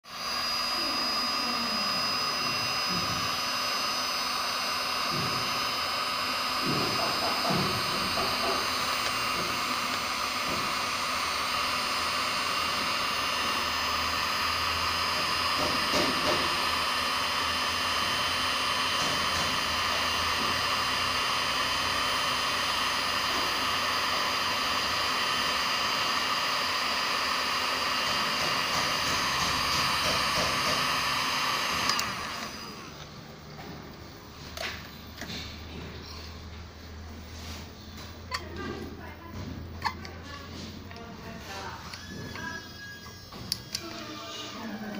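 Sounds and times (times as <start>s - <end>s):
heat gun blowing air: 0.0s - 33.2s.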